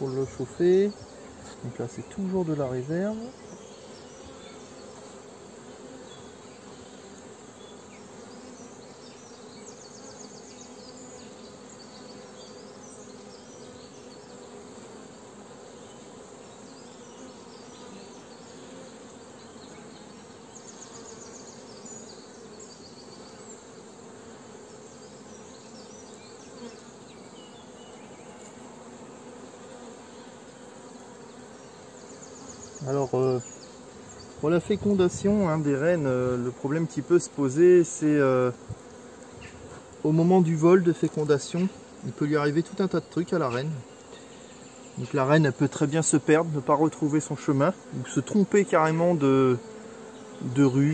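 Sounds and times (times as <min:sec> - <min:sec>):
bees buzzing: 0:00.0 - 0:50.9.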